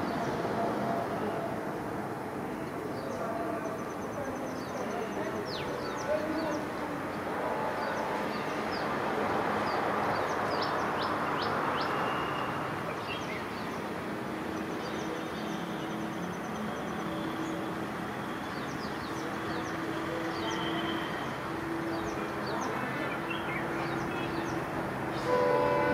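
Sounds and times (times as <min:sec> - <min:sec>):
birds chirping: 0:02.4 - 0:25.9
distant locomotive engine drone: 0:13.6 - 0:25.9.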